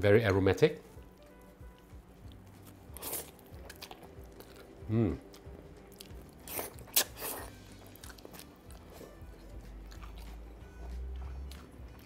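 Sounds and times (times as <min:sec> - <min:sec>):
chewing: 0:01.0 - 0:12.0
person slurping noodles: 0:06.4 - 0:07.6.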